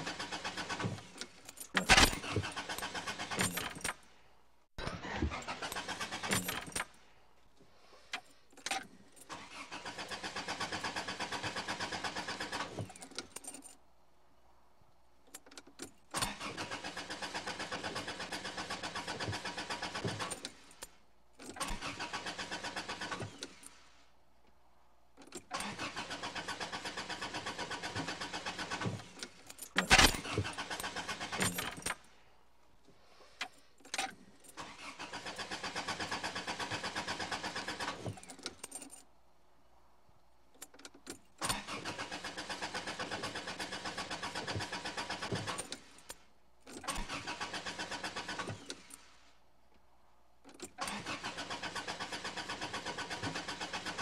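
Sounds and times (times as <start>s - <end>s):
car starter cranking engine: 0.0s - 4.0s, 4.8s - 7.0s, 8.8s - 13.6s, 16.0s - 23.8s, 25.3s - 32.1s, 33.2s - 39.0s, 41.3s - 49.2s, 50.6s - 54.0s.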